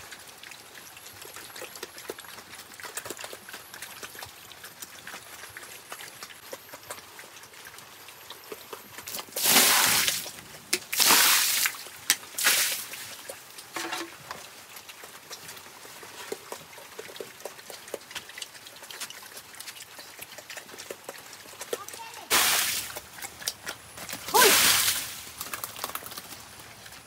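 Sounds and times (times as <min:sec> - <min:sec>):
pigs feeding clicks: 0:00.0 - 0:27.0
water splashing on floor: 0:09.4 - 0:10.3, 0:10.9 - 0:13.2, 0:22.3 - 0:23.0, 0:24.2 - 0:26.2.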